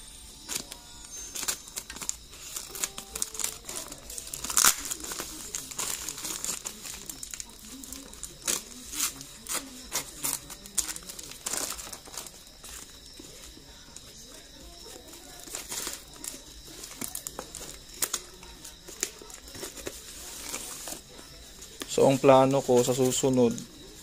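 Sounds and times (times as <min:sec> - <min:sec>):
scissors snipping plastic: 0:00.4 - 0:12.3
plastic crinkling and tearing: 0:00.4 - 0:13.1, 0:14.8 - 0:21.1.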